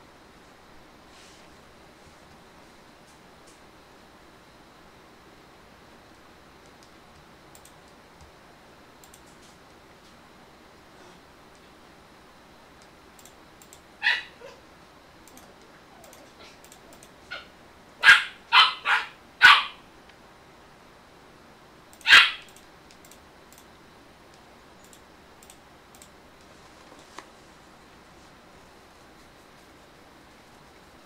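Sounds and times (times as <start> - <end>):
dog barking sharply: 14.0 - 14.6, 17.3 - 19.8, 22.0 - 22.5.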